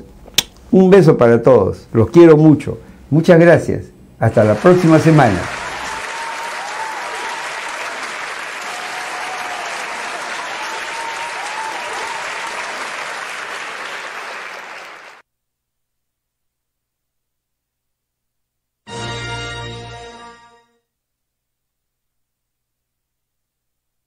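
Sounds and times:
applause: 4.3 - 15.2.

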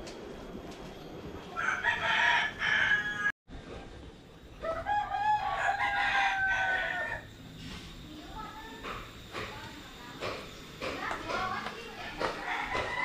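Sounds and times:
rooster crowing: 1.6 - 3.4, 4.6 - 7.4, 12.4 - 13.0.

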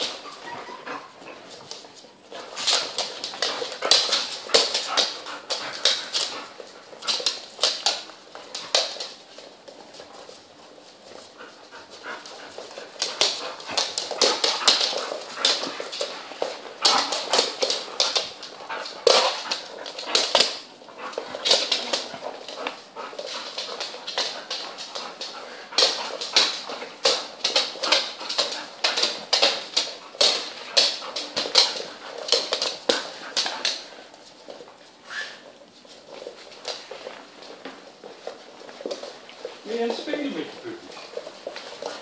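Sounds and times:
claws clicking on hardwood floor: 0.0 - 42.0
puppies yipping and whimpering: 0.2 - 1.2.

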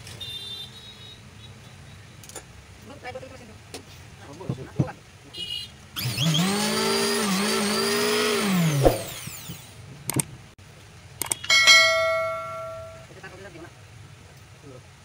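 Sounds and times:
electric planer motor running: 6.0 - 9.6.

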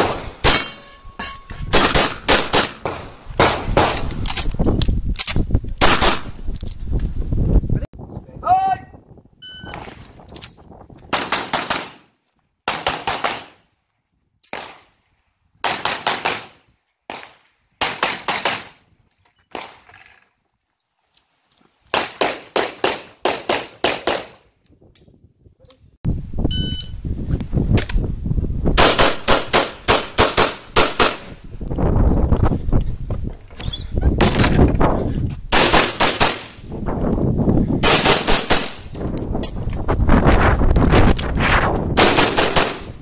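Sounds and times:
pistol shots: 1.7 - 4.0, 11.1 - 12.0, 12.7 - 13.6, 17.1 - 18.8, 28.8 - 31.3, 35.5 - 36.6, 37.8 - 38.9, 42.0 - 43.0.

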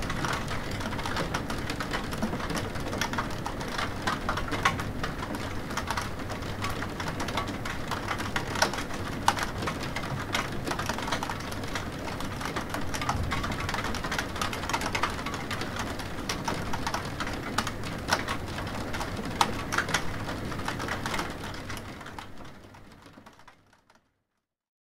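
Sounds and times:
steady rain: 0.0 - 23.9.

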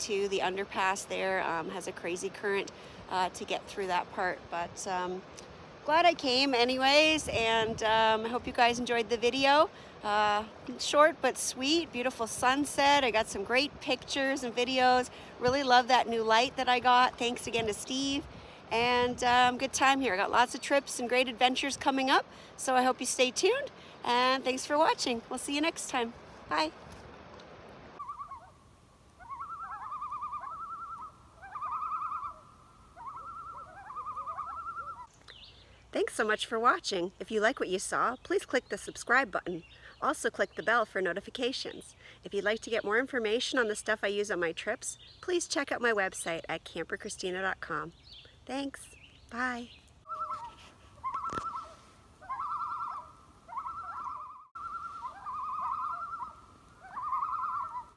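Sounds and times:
bird trilling call: 28.0 - 28.6, 29.2 - 35.6, 48.0 - 57.9.

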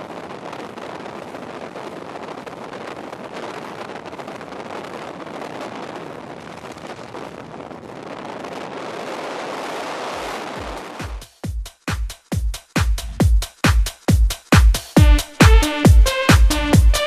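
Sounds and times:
wind roaring over microphone: 0.0 - 11.3.

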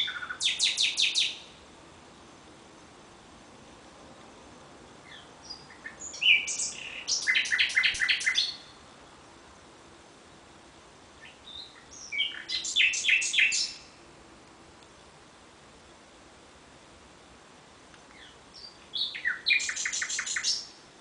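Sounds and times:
nightingale singing: 0.0 - 1.6, 5.0 - 8.9, 11.2 - 14.0, 18.0 - 20.9.

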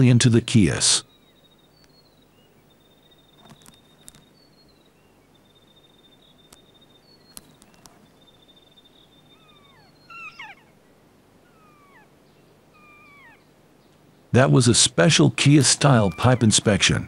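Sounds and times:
parrot cries sliding downward: 9.6 - 10.7.

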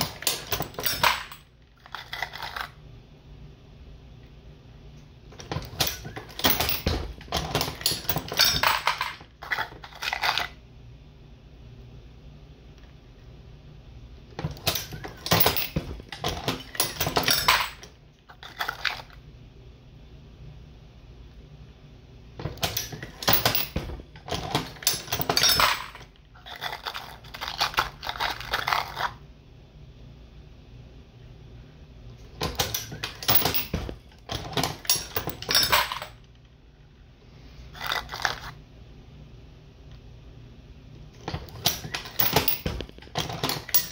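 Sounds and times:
brass cases clinking on metal: 0.0 - 1.5, 5.6 - 10.4, 14.6 - 17.9, 22.6 - 29.0, 32.4 - 36.2, 41.3 - 43.9.

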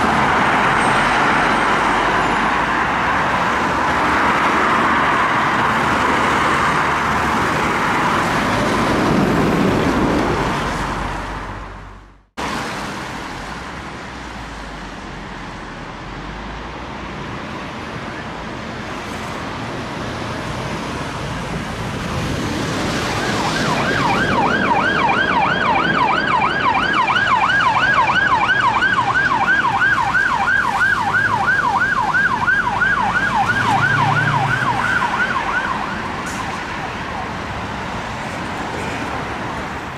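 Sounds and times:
road traffic passing: 0.0 - 39.9
police siren yelping: 22.8 - 37.5.

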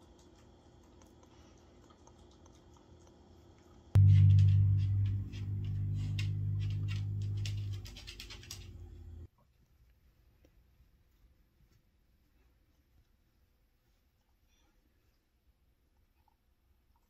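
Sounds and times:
steady low hum: 4.0 - 9.3
dog claws clicking on tile: 7.4 - 9.0.

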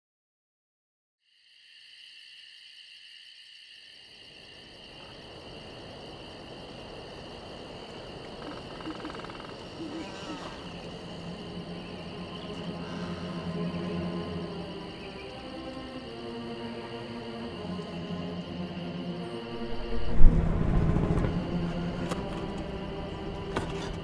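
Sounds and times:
crickets chirping: 1.2 - 24.0
low hum: 18.1 - 24.0
low rumble: 19.4 - 24.0.

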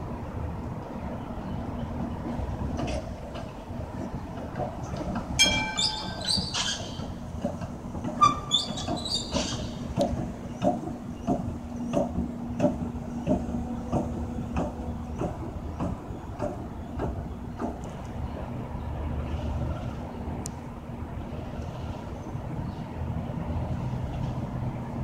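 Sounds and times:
wheels clacking over rail joints: 2.0 - 18.6
tram wheels squealing: 4.8 - 17.8.

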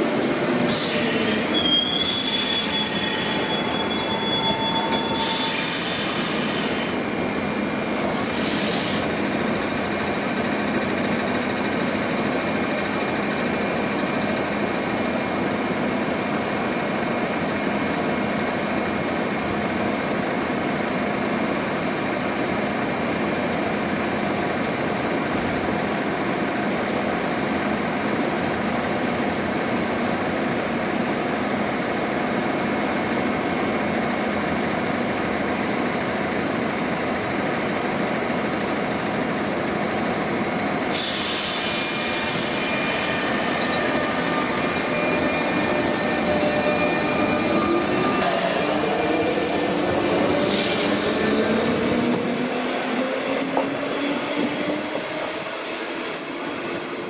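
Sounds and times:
train equipment humming and whining: 0.0 - 57.0
loud hiss: 8.2 - 9.2.

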